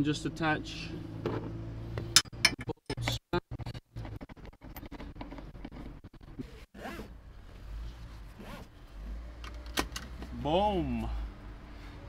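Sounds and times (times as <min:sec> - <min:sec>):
seatbelt webbing pulled out: 0:06.3 - 0:08.7.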